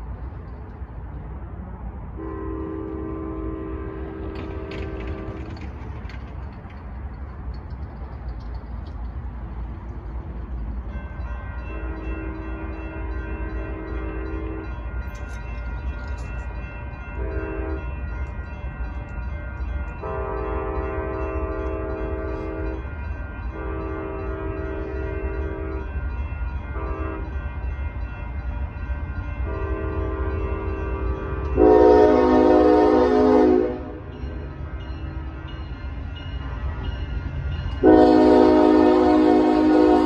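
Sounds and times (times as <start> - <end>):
low rumble of train: 0.0 - 40.0
diesel locomotive horn blasts: 2.1 - 5.7, 11.6 - 14.9, 17.2 - 18.0, 20.0 - 26.0, 26.7 - 27.6, 29.4 - 34.1, 37.7 - 40.0.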